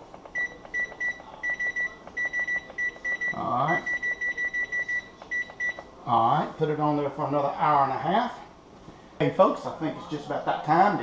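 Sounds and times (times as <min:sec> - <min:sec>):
control panel beeping: 0:00.2 - 0:05.9.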